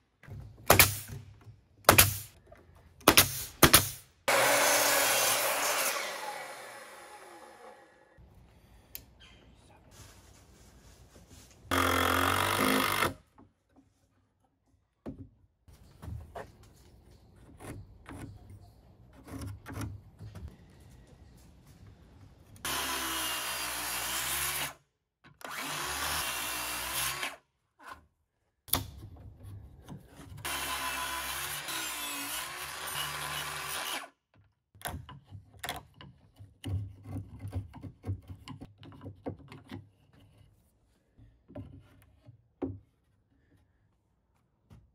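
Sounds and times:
circular saw cutting wood: 4.3 - 8.2, 22.6 - 24.8, 25.4 - 27.4, 30.4 - 34.1.

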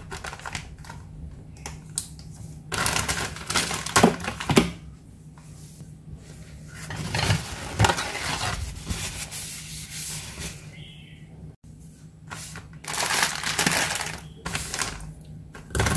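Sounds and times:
steady low hum: 0.0 - 15.9
plastic bag crinkling: 2.7 - 4.4, 12.8 - 15.9.

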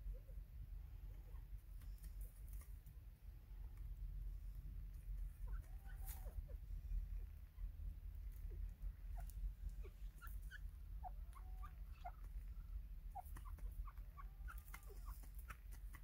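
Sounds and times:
steady low rumble: 0.0 - 16.0
bird chirps and squeaky peeps: 5.3 - 7.7, 9.0 - 16.0.

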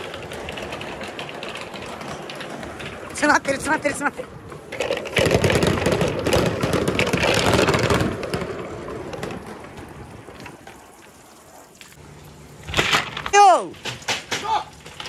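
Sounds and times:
balls clattering down a slide: 4.6 - 10.0
running water splashing: 9.8 - 12.7.

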